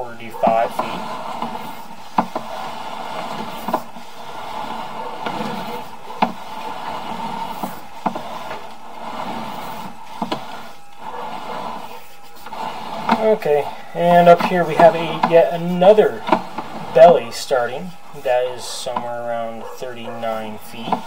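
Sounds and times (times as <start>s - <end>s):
cable scraping through drain: 0.0s - 21.0s
sharp clicks and knocks: 0.4s - 4.0s, 16.2s - 17.0s.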